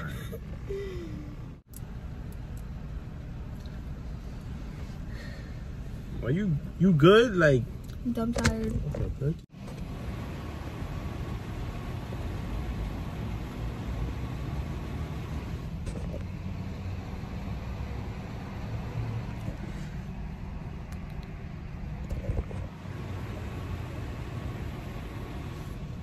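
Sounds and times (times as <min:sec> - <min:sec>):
car cabin rumble: 0:05.7 - 0:16.5.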